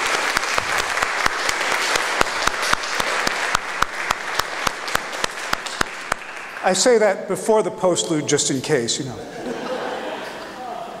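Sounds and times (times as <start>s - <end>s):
sharp close claps: 0.0s - 7.0s
congregation applauding: 0.0s - 7.2s.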